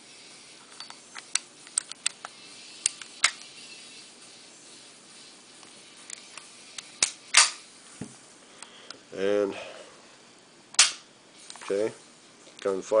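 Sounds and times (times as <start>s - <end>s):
pistol slide clicks and clacks: 7.0s - 7.6s.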